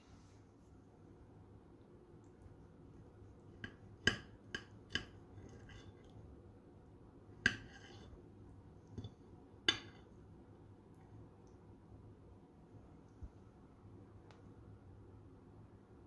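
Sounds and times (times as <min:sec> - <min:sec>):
cutlery clinking on ceramic plate: 0:03.6 - 0:06.2, 0:07.4 - 0:08.2, 0:08.9 - 0:10.2.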